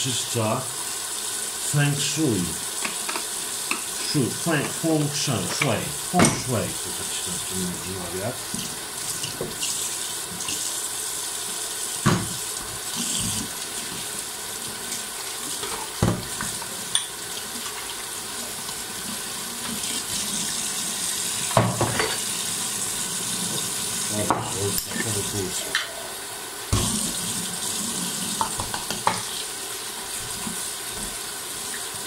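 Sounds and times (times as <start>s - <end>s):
tap water running into sink: 0.0s - 32.0s
items knocking against sink: 12.0s - 12.4s, 15.6s - 16.6s, 21.5s - 22.2s.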